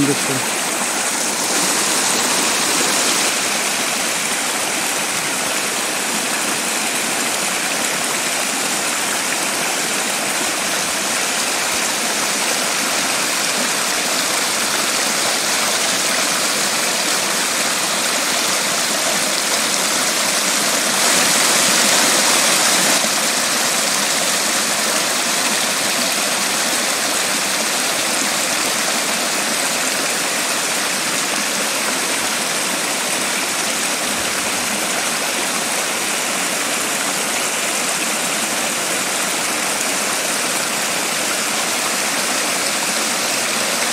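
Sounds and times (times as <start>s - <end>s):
brook rushing over rocks: 0.0s - 9.5s.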